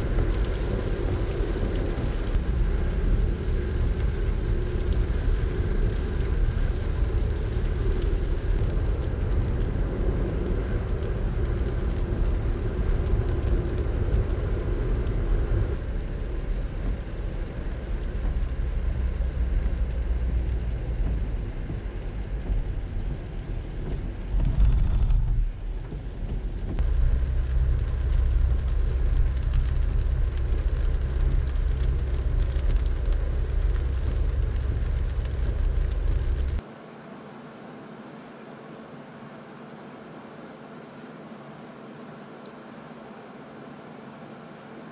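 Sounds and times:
tyre hiss on wet road: 0:00.0 - 0:24.2, 0:26.8 - 0:36.6
rain on windshield: 0:00.0 - 0:36.8, 0:38.0 - 0:44.9
road and engine rumble: 0:00.0 - 0:36.8.

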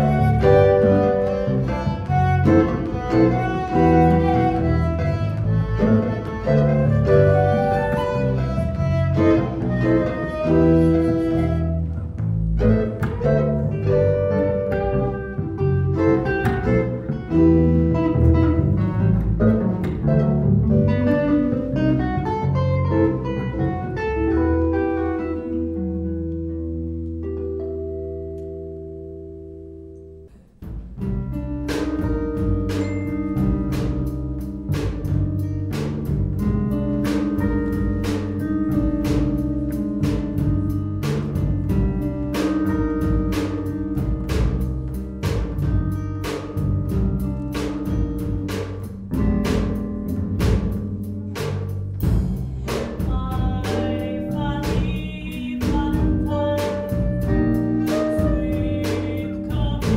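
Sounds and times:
electric bass guitar plucking: 0:00.0 - 0:59.9
slow band piece: 0:00.0 - 0:59.9
drum kit with cymbals: 0:30.3 - 0:59.9.

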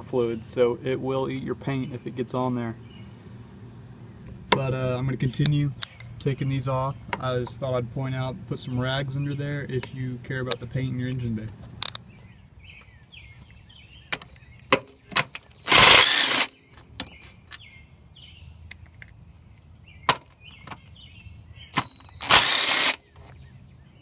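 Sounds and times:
impact wrench hammering: 0:21.8 - 0:23.0.

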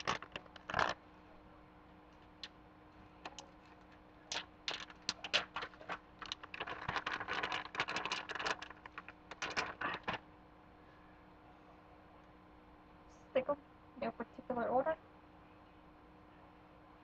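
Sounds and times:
plastic package crinkling: 0:00.0 - 0:01.0, 0:04.3 - 0:10.2.

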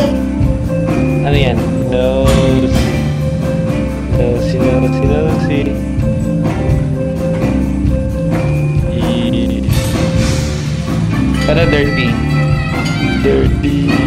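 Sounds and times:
instrumental accompaniment: 0:00.0 - 0:14.0
person singing: 0:08.8 - 0:10.2, 0:13.2 - 0:14.0.

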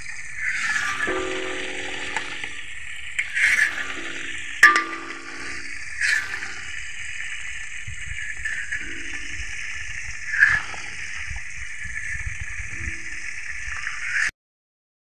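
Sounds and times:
fish deep-frying in hot oil: 0:00.0 - 0:14.3
oil spattering: 0:01.1 - 0:06.5.

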